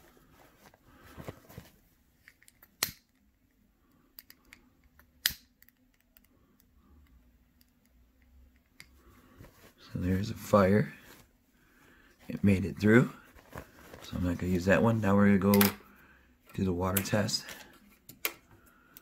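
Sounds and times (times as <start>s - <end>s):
paper masks rustling: 0.0s - 2.0s, 12.0s - 14.9s.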